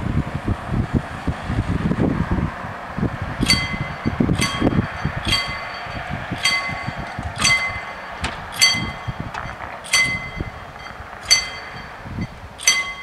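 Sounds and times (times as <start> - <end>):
level crossing warning bell: 3.4 - 13.0.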